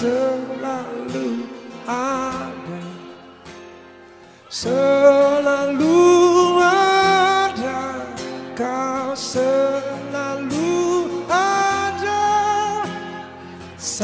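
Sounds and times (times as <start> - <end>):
man singing slow song: 0.0 - 3.6, 4.4 - 14.0
acoustic guitar: 0.0 - 14.0.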